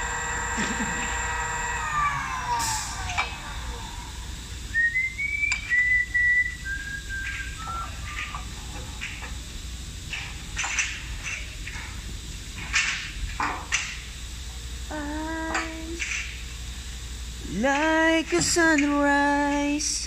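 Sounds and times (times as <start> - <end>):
person whistling: 4.7 - 8.3.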